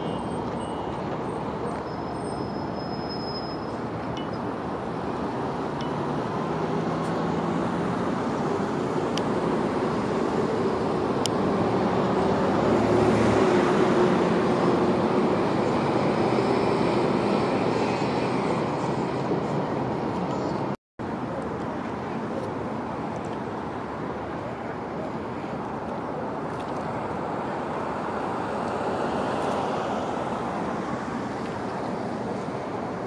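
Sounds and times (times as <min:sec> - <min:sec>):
passing vehicle engine drone: 0:04.7 - 0:20.2.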